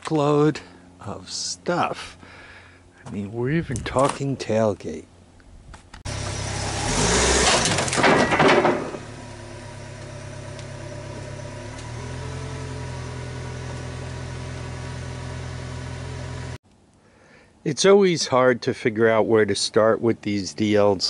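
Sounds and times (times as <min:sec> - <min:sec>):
vehicle scraping off tailgate: 0:06.1 - 0:16.6
pickup engine idling: 0:08.5 - 0:16.6.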